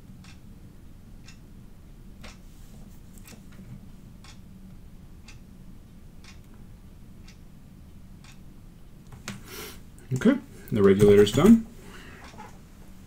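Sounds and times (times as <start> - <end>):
clock ticking: 0.0 - 2.4, 4.2 - 8.6
faint low hum: 0.0 - 13.0.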